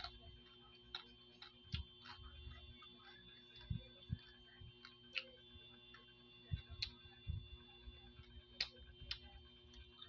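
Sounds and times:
faint steady hum: 0.0s - 10.0s
soft low thumps: 6.4s - 8.0s.

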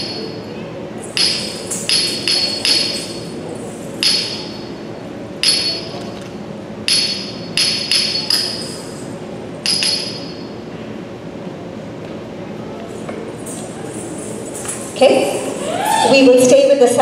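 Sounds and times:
small hand cymbals struck: 1.0s - 3.4s, 4.0s - 4.8s, 5.4s - 6.0s, 6.8s - 10.6s.

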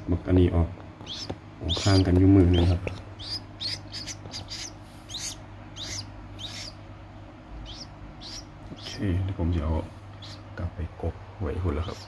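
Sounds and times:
chicks peeping: 1.0s - 6.9s, 7.5s - 10.5s, 11.7s - 12.0s.

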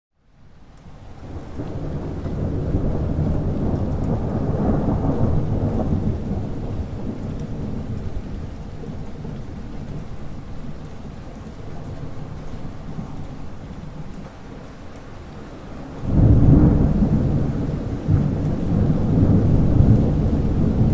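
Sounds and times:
steady rain: 0.1s - 20.9s
thunder rumbling: 1.1s - 20.9s.

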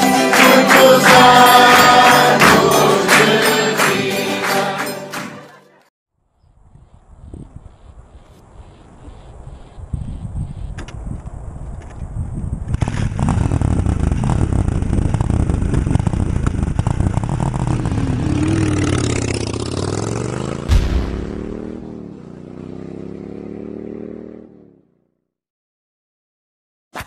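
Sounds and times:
motorcycle engine revving: 12.8s - 25.2s
sharp knock: 20.7s - 21.9s.

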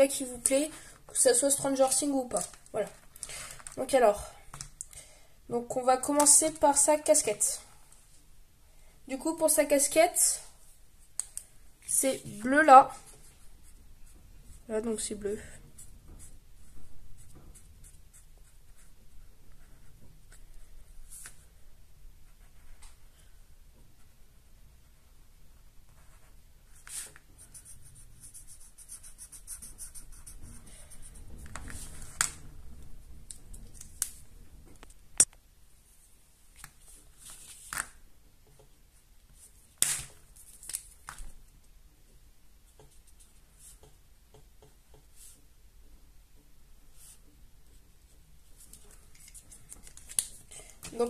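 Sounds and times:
felt-tip pen scratching on paper: 25.9s - 31.2s.

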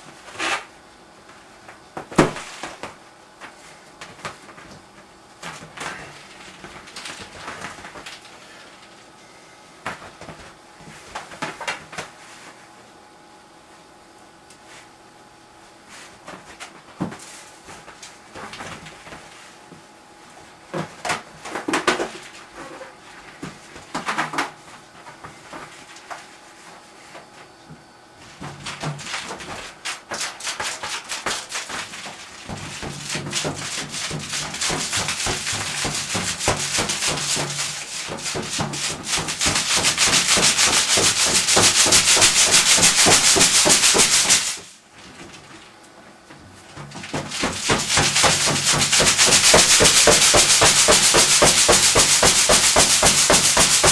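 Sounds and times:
hands rubbing a latex balloon: 30.1s - 44.7s, 47.3s - 53.9s.

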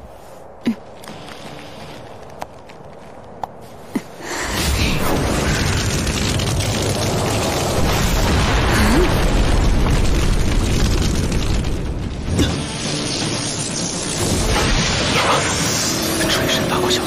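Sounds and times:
deep rumble: 4.3s - 16.8s
booms: 4.5s - 16.0s.

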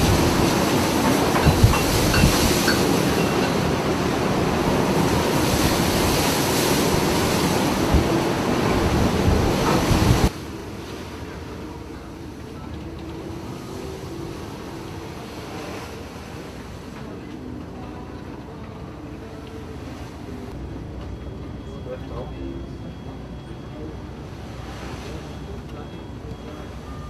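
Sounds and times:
wind buffeting microphone: 0.0s - 10.4s
steady hum: 0.0s - 27.0s.

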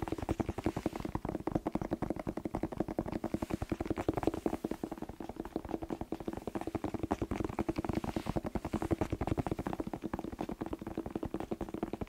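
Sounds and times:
fingertips tapping on bell pepper: 0.0s - 12.0s.

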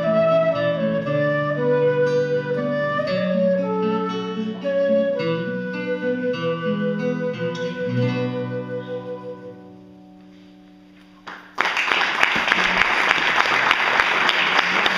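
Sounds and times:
flute: 0.0s - 10.0s
acoustic guitar: 0.0s - 11.6s
audience applause: 11.2s - 14.9s.

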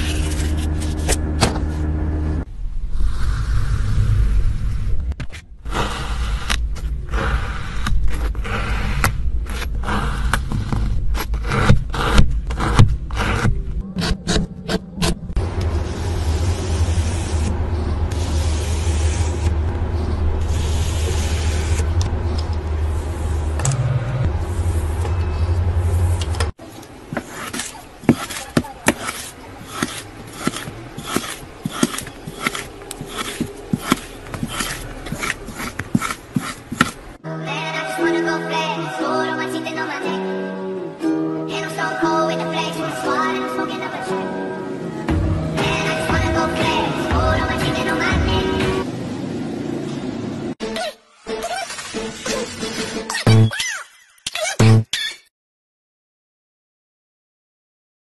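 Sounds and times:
steady low hum: 14.9s - 26.6s
metal blade scraping sand: 27.1s - 37.0s.

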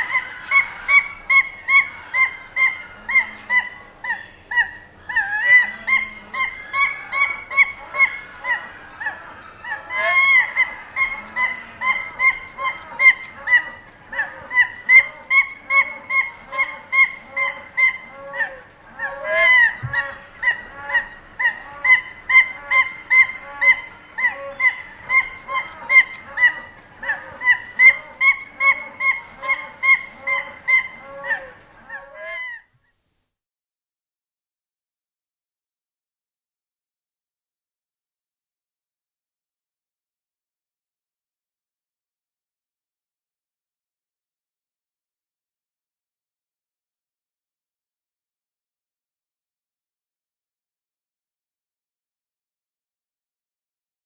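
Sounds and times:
faint waterfowl calls: 0.0s - 32.7s
goose honking: 0.0s - 32.7s.

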